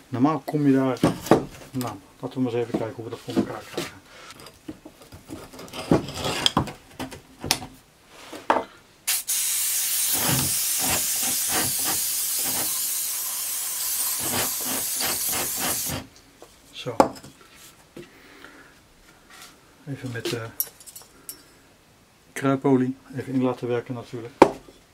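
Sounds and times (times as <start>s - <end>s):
aerosol can spraying hiss: 9.1s - 16.0s.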